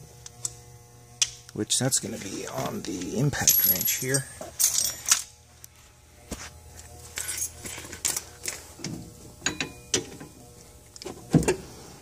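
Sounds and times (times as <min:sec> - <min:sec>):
metallic clinks of hand tools: 0:03.4 - 0:05.3.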